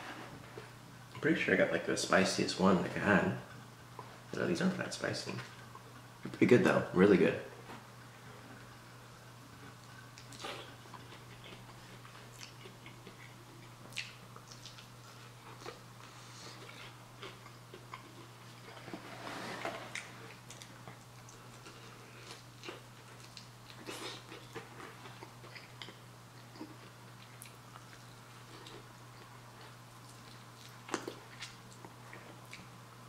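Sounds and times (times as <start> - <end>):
chewing crunchy food: 9.6 - 19.0, 19.9 - 32.7.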